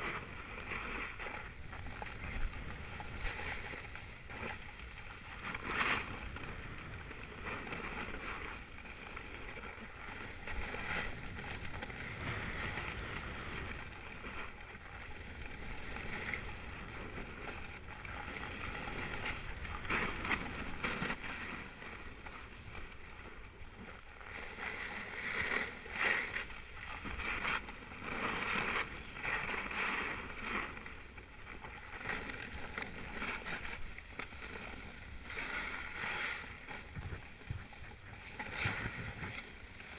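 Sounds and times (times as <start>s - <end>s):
skis scraping over packed snow: 0.0s - 39.9s.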